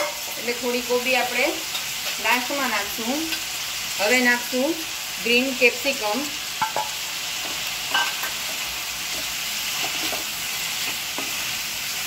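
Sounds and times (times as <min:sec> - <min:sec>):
vegetables sizzling in pan: 0:00.0 - 0:12.0
spatula scraping metal pan: 0:06.6 - 0:11.6.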